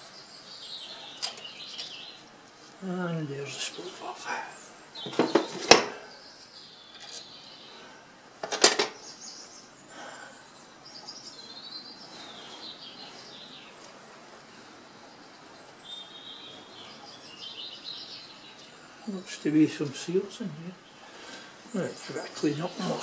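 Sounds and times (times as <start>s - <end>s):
birds chirping faintly: 0.0s - 23.0s
sharp metal clinks: 1.2s - 2.0s.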